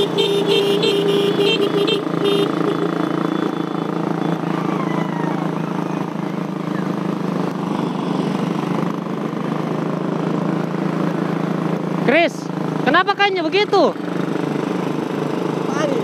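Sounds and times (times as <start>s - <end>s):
vehicle horn beeps: 0.0s - 3.8s
motorcycle engine running: 0.0s - 16.0s.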